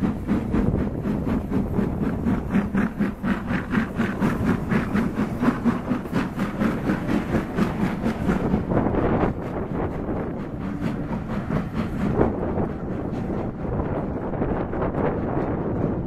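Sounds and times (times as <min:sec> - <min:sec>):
steam locomotive chuffing: 0:00.0 - 0:16.0.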